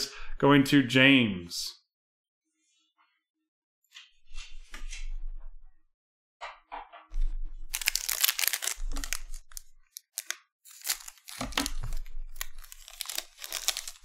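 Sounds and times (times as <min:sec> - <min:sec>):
foil wrapper crinkling and tearing: 0:07.7 - 0:14.0.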